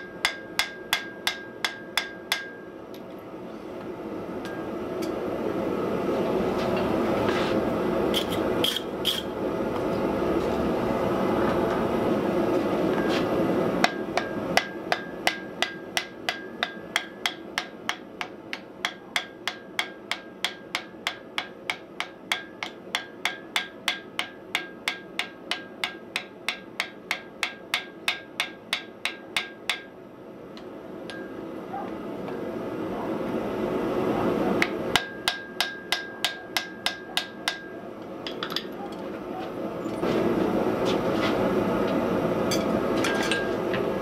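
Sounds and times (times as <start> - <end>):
hammer striking iron on anvil: 0.0 - 2.8, 4.4 - 5.2, 13.8 - 29.9, 31.1 - 31.4, 34.6 - 38.8, 42.5 - 43.6.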